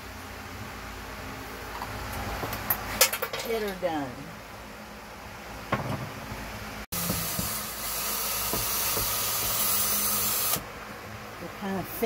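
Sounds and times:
cordless drill running: 0:07.0 - 0:10.6.

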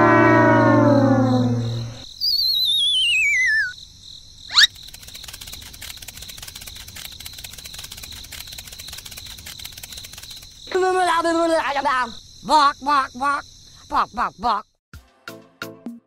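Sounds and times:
cartoon whistle sliding down: 0:00.0 - 0:03.8, 0:04.5 - 0:04.7
crickets chirping: 0:00.2 - 0:14.8.

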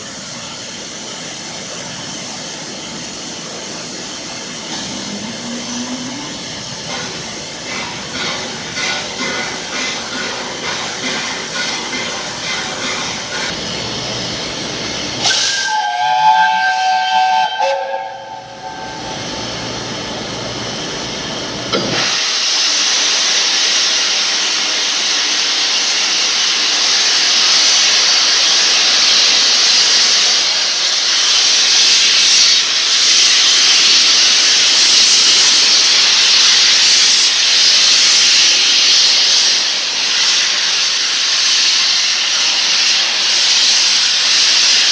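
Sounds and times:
steam hissing: 0:00.0 - 0:44.9
steam locomotive whistle: 0:15.2 - 0:19.3.

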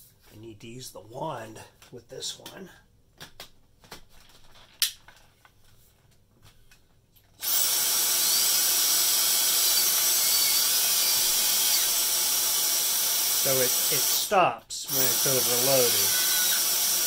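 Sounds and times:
handheld vacuum running: 0:14.9 - 0:17.0.

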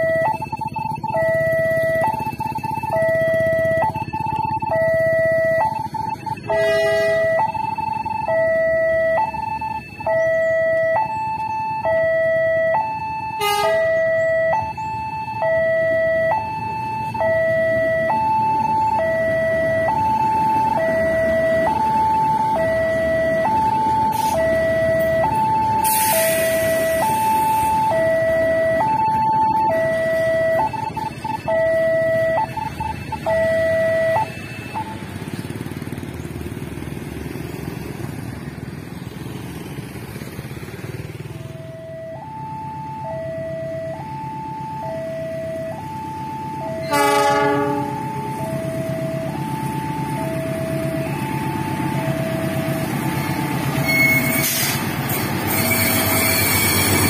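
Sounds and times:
level crossing two-tone alarm: 0:00.0 - 0:35.1, 0:41.4 - 0:54.8
passenger train rumbling past: 0:34.7 - 0:44.8, 0:45.4 - 0:57.0
short beeps: 0:53.8 - 0:54.6.

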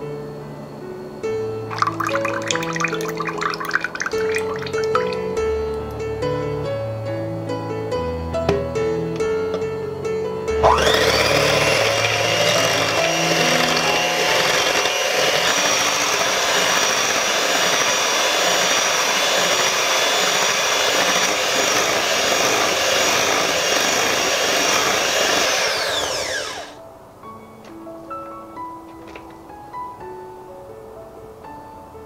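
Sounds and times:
electric hand mixer whipping cream: 0:01.7 - 0:05.3, 0:10.6 - 0:26.8.

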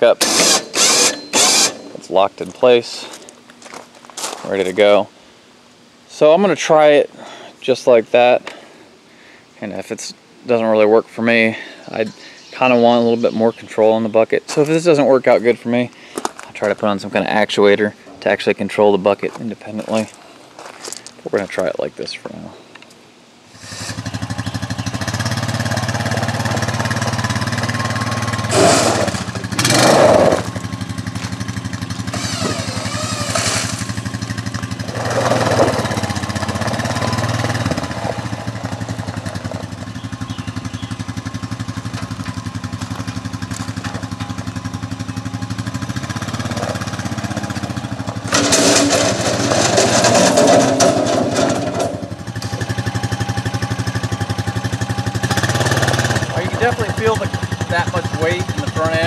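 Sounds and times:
quad engine running: 0:23.6 - 0:59.0
bucket pushing into gravel: 0:32.2 - 0:34.1, 0:34.7 - 0:38.4, 0:47.8 - 0:52.2.

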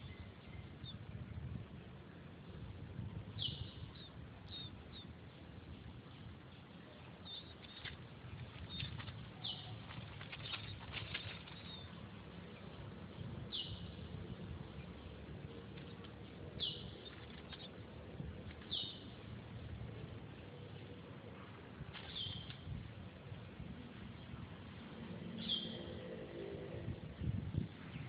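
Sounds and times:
faint outdoor background: 0:00.0 - 0:28.0
light rustling and ticks: 0:07.3 - 0:12.8, 0:15.6 - 0:19.3, 0:21.8 - 0:23.0.

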